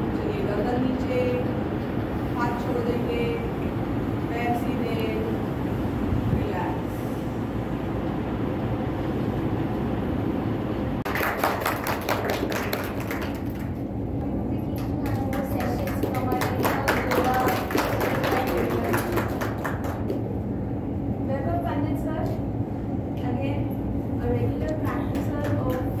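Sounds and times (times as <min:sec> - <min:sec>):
low room rumble: 0:00.0 - 0:26.0
voices: 0:02.3 - 0:05.5, 0:14.2 - 0:20.1, 0:23.2 - 0:26.0
audience clapping: 0:11.0 - 0:13.9, 0:14.7 - 0:20.3.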